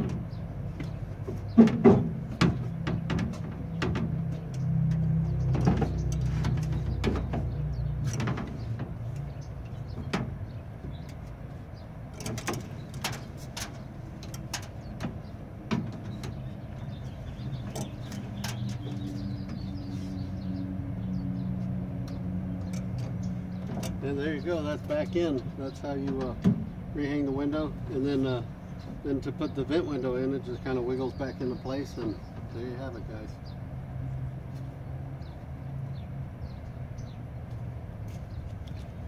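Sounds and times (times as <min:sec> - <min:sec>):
door glass knocking and scraping: 0:00.0 - 0:04.5, 0:05.4 - 0:11.2, 0:12.1 - 0:19.7.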